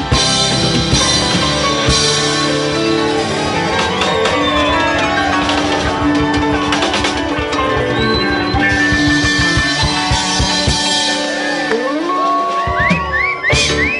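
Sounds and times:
crowd whooping: 0.0s - 13.9s
electric guitar slide: 0.0s - 13.9s
live rock band playing: 0.0s - 13.9s.

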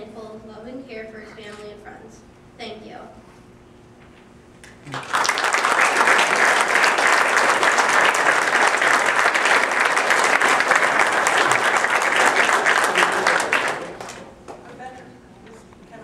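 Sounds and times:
audience applauding: 4.8s - 14.8s.

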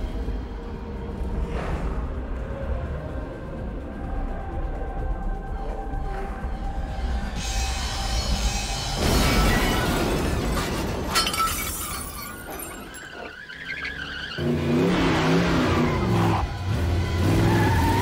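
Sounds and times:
dramatic music score: 0.0s - 11.2s
glass shattering: 9.0s - 13.3s.

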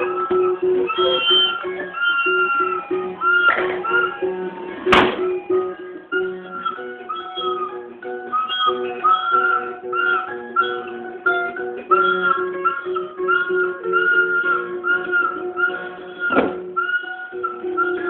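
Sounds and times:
plucked toy guitar tune: 0.0s - 18.0s
toy flute piping notes: 0.0s - 18.0s.

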